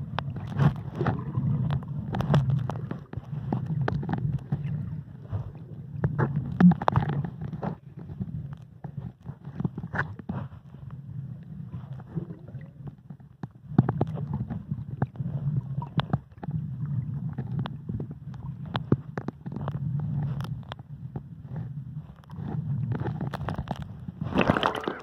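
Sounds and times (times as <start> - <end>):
sharp clicks and crackles: 0.0 - 10.4, 17.2 - 24.8
underwater rumbling water: 0.0 - 25.0.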